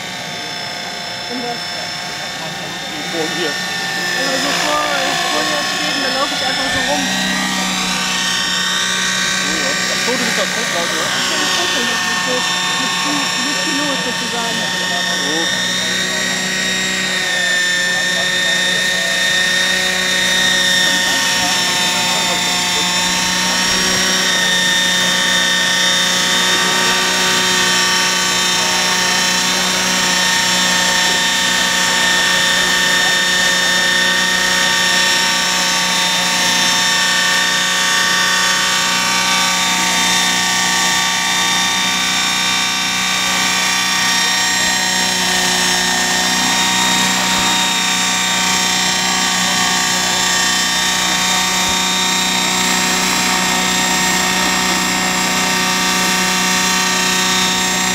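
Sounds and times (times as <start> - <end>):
model helicopter rotor whine: 0.0 - 57.9.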